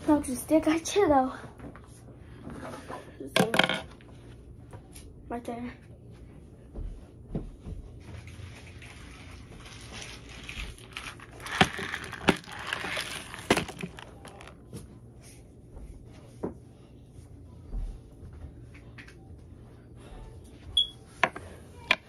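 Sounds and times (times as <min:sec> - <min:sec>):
plastic rustling: 0:08.3 - 0:14.8
plastic tubs set on plastic tray: 0:10.4 - 0:14.6.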